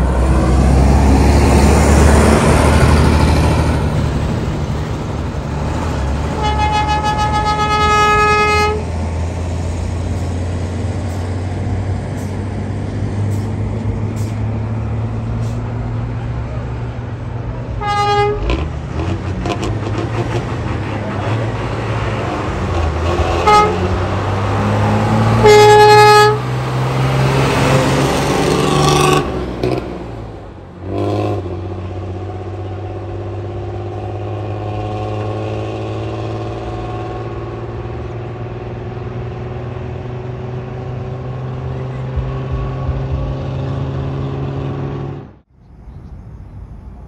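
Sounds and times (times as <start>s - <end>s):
bus engine running hard: 0.0s - 47.0s
bus horn blasts: 6.3s - 9.0s, 17.7s - 20.4s, 22.8s - 24.1s, 25.2s - 26.6s.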